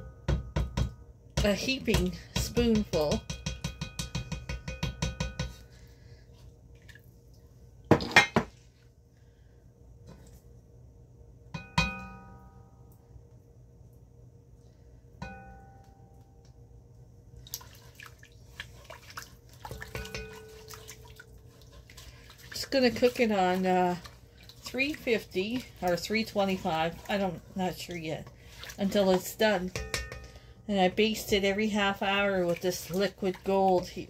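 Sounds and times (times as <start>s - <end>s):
utensils knocking on cast-iron pot: 0.2s - 5.6s, 29.2s - 30.5s.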